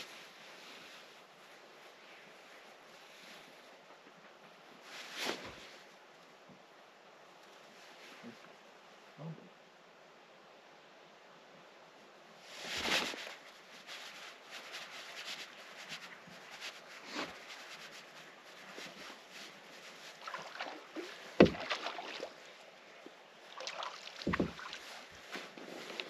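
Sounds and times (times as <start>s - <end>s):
knocks and rustling: 21.3s - 21.8s, 24.2s - 25.8s.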